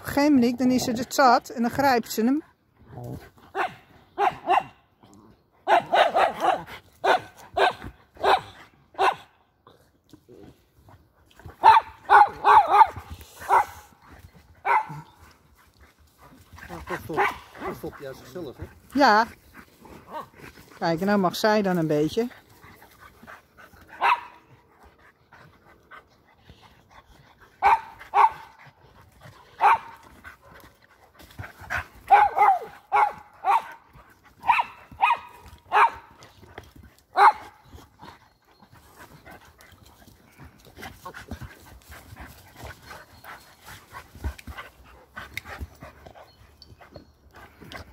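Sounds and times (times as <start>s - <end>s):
dogs barking: 3.5s - 4.8s, 5.6s - 9.4s, 11.5s - 14.0s, 14.6s - 15.2s, 16.7s - 18.5s, 23.8s - 24.6s, 27.6s - 28.6s, 29.5s - 30.2s, 31.7s - 36.2s, 37.1s - 37.7s.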